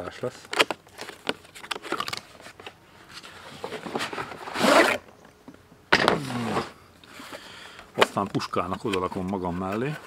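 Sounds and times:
packaging clicks and scrapes: 0.4s - 5.1s.

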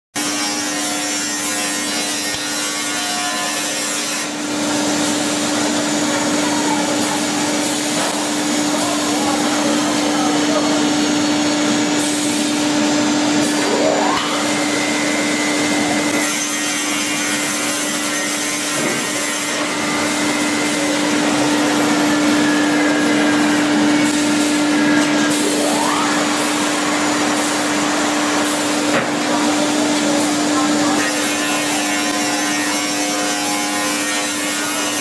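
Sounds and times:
constant machine hum: 0.2s - 35.0s
saw motors and blades whirring: 0.2s - 35.0s
rising whine: 25.2s - 28.9s.

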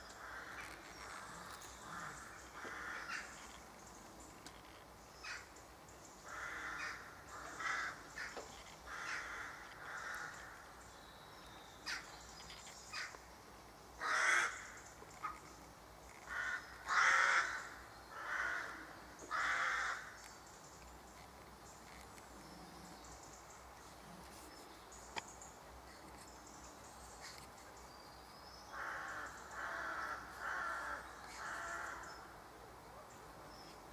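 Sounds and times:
crows cawing: 0.2s - 1.3s, 1.9s - 3.6s, 6.3s - 10.6s, 14.0s - 15.4s, 16.2s - 20.2s, 28.7s - 32.1s.

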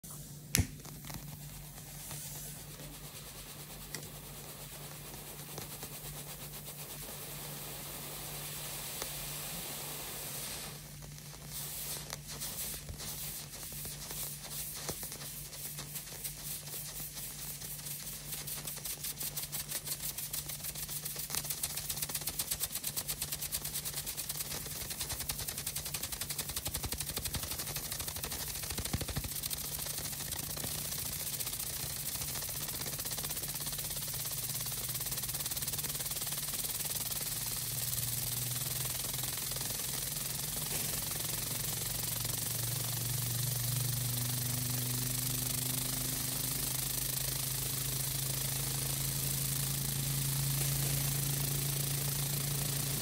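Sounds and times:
steady steam hiss: 1.2s - 53.0s
steam jets spitting and rattling: 2.0s - 53.0s.

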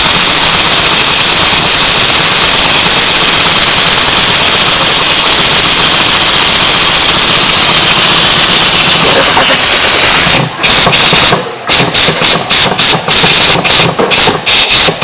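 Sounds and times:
model steam engine hissing and chuffing: 8.0s - 15.0s.

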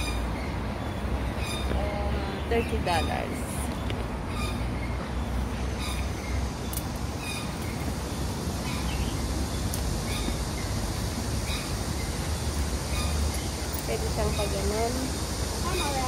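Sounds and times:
birds calling: 0.0s - 16.0s.

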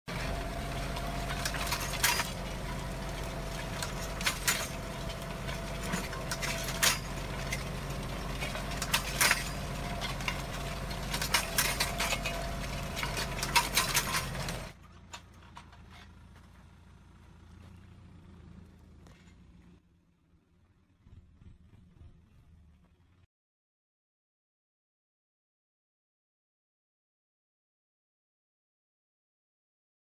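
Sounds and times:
tractor engine running: 0.1s - 23.3s.

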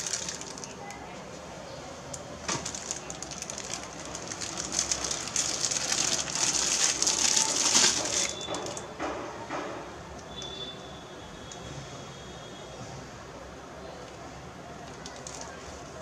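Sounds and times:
plastic wrapping crinkling: 0.0s - 1.3s, 2.2s - 8.9s, 14.8s - 16.0s.

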